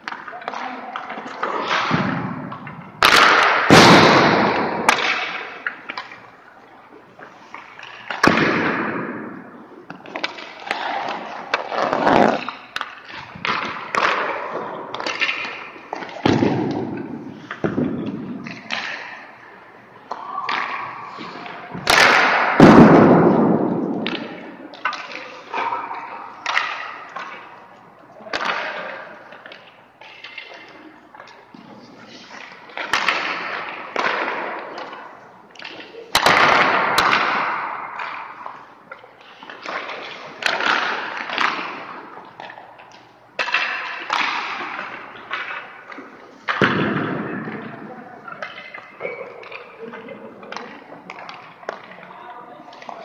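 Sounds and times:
sharp puck impacts: 0.0 - 6.3, 7.5 - 19.4, 20.1 - 27.6, 32.2 - 49.7
skates scraping ice: 9.9 - 19.2.

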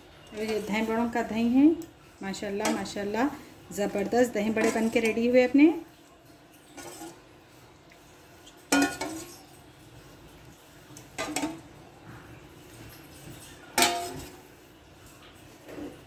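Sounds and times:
dishes and utensils clinking: 0.2 - 1.2, 4.5 - 5.3, 6.5 - 7.2, 8.4 - 9.6, 10.9 - 11.8, 12.7 - 16.0.

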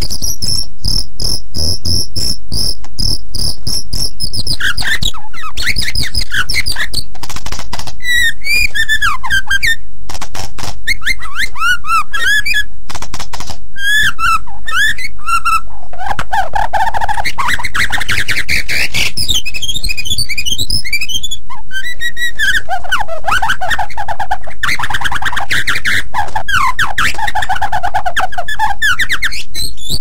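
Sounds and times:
bird singing whistled phrases: 4.2 - 7.1, 8.0 - 9.8, 10.9 - 12.7, 13.8 - 15.7, 17.3 - 22.6.

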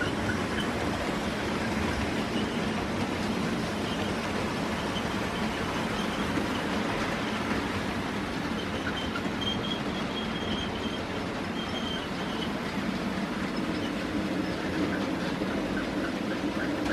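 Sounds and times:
faint high-pitched squeal: 8.5 - 12.6.

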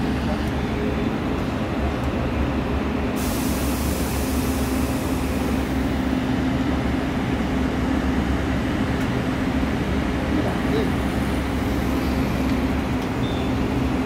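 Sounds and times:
electric locomotive droning: 0.0 - 14.0
hiss: 3.2 - 5.9.

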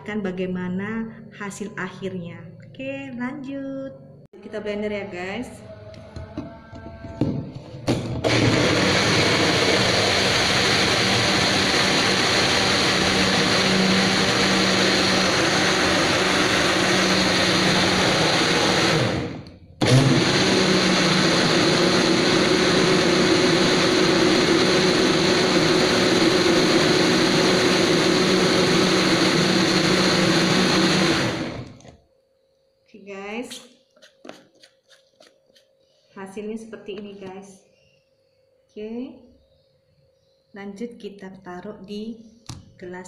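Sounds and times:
blender running: 8.0 - 31.9.

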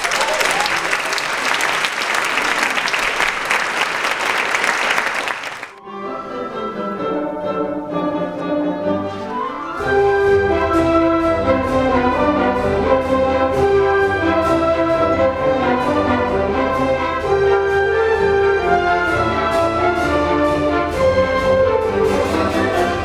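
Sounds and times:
orchestra playing classical music: 5.4 - 23.0.

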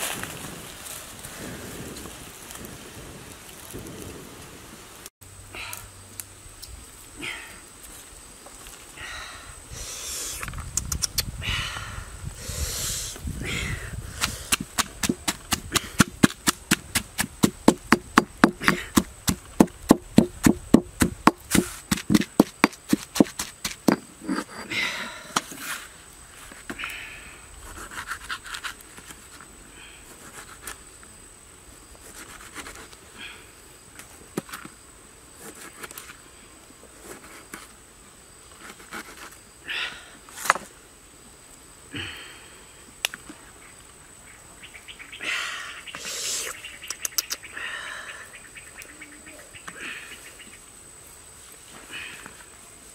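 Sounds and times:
stone pestle pounding in mortar: 14.5 - 24.0.

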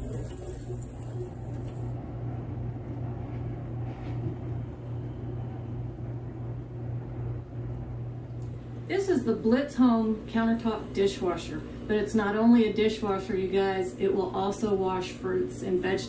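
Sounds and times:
water churning: 0.0 - 1.9
dishwasher pump humming: 0.0 - 16.0.

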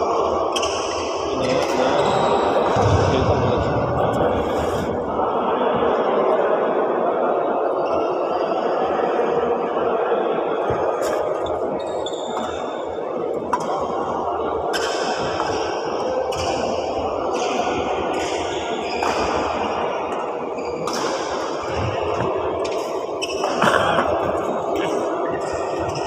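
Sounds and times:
rackets hitting shuttlecock: 13.5 - 13.8, 20.8 - 24.0.

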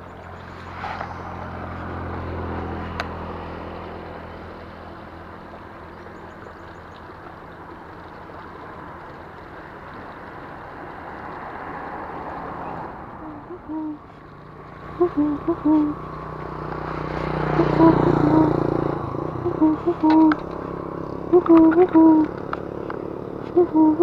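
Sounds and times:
motor engine running: 0.0 - 24.0.

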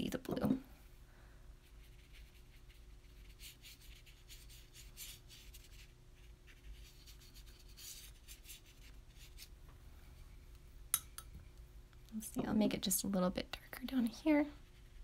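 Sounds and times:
brush stroking across paper: 1.6 - 10.2, 14.6 - 15.0.

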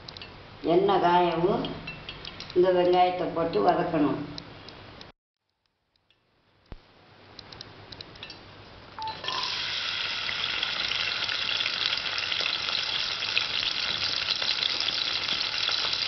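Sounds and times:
onions sizzling in hot oil: 9.1 - 16.0.

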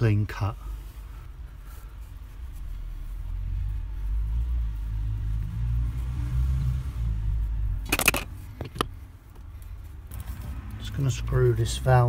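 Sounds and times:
sharp metallic clicks: 7.8 - 9.5.

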